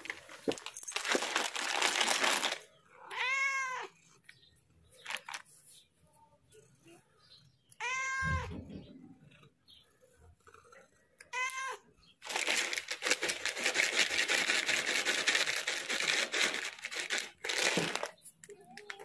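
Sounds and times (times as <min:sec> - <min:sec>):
loud crinkling rustling: 0:00.0 - 0:02.7, 0:04.9 - 0:05.9, 0:12.2 - 0:19.0
cat meowing: 0:03.0 - 0:04.0, 0:07.8 - 0:09.0, 0:11.2 - 0:11.9.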